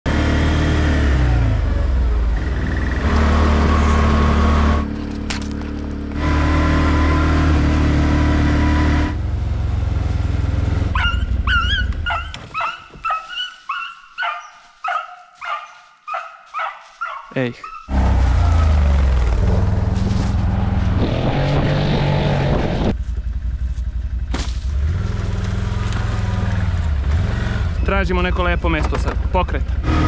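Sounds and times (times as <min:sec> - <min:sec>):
atv engine running: 0:00.1 - 0:13.2, 0:17.9 - 0:30.0
small dog barking: 0:10.9 - 0:17.9.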